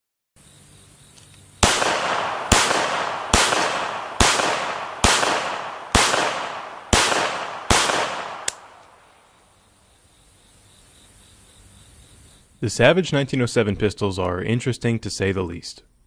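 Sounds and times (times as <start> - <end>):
pistol shots echoing: 1.6 - 9.2.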